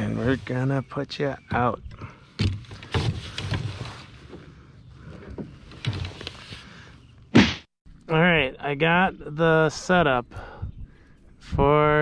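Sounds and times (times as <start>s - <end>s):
loud thump: 7.3s - 7.7s.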